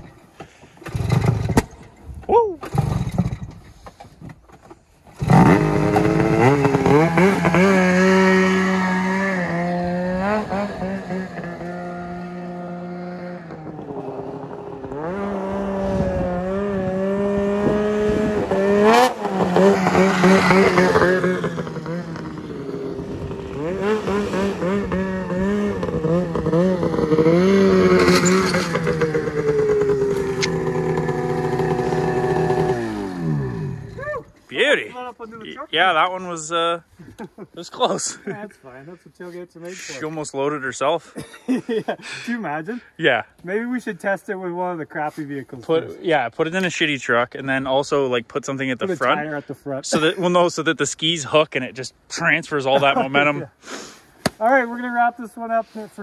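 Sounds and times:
snowmobile engine revving: 0.8s - 1.6s, 5.2s - 36.6s.

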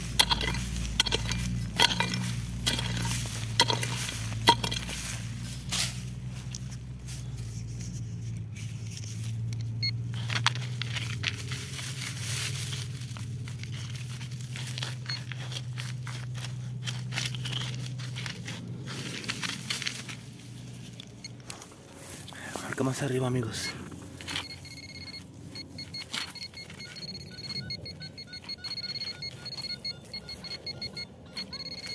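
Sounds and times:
steady low hum: 0.0s - 10.6s
crunching in dry dirt: 0.0s - 31.9s.

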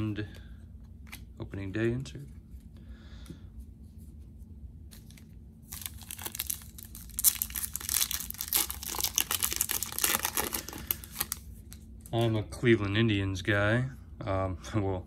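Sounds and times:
foil wrapper crinkling and tearing: 5.0s - 11.5s.

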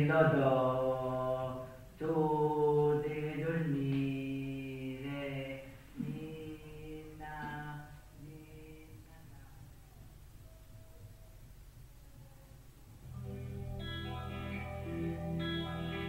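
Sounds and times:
man chanting: 0.0s - 9.3s.

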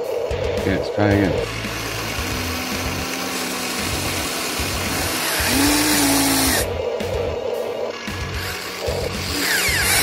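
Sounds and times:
toy excavator motors whining: 1.4s - 10.0s.

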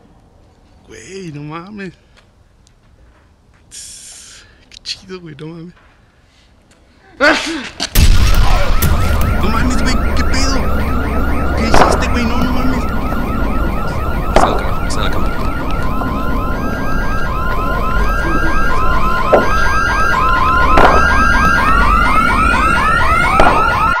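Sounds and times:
sharp bangs: 7.9s - 24.0s
alarm beeping: 8.0s - 24.0s
rising siren wail: 8.0s - 24.0s
car alarm chirping: 8.1s - 24.0s.

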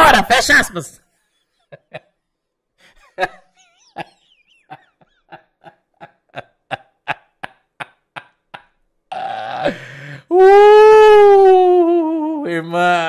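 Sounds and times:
man laughing in breathy gasps: 9.6s - 10.3s.

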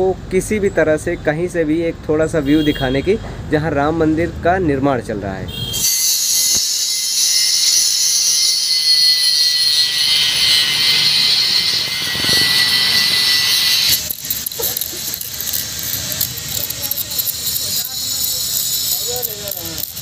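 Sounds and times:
angle grinder sanding stone: 5.8s - 20.0s
hand tool scraping stone: 5.8s - 20.0s.

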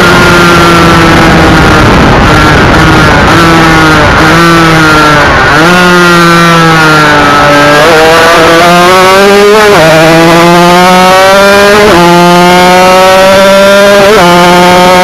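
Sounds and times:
motorcycle engine accelerating hard: 0.0s - 15.0s.

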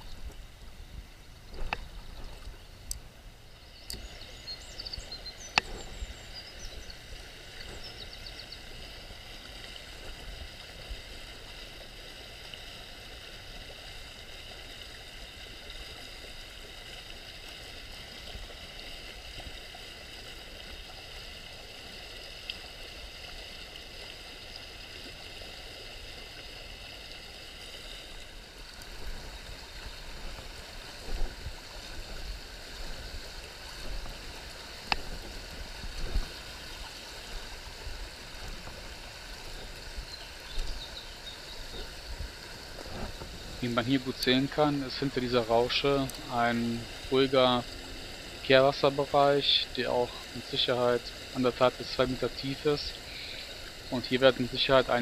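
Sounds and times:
river rushing over gravel: 24.8s - 55.0s.

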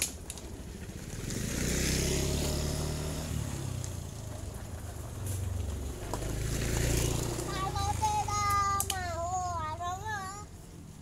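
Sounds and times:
vehicle engine passing: 0.5s - 10.5s.

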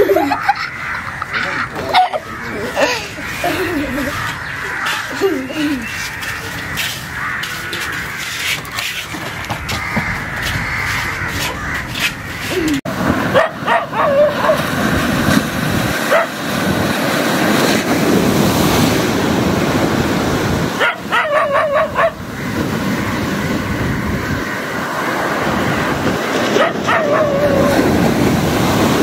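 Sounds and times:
surf breaking over rocks: 12.9s - 21.2s.

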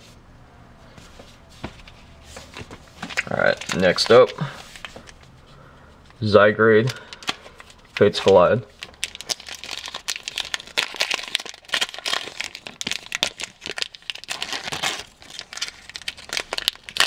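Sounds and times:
foil wrapper crinkling: 2.5s - 5.2s, 6.8s - 17.0s.

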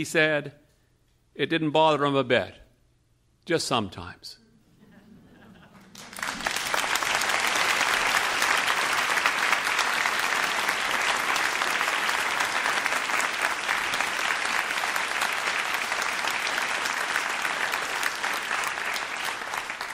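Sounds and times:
audience applauding: 5.8s - 19.9s.

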